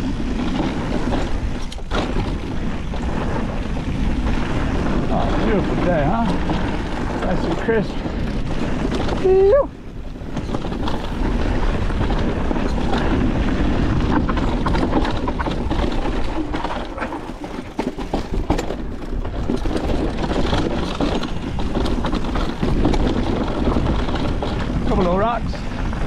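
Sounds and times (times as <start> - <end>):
tyres on dirt and rock: 0.0 - 26.0
wind rumble on microphone: 0.0 - 26.0
chain and frame rattling: 13.9 - 25.2.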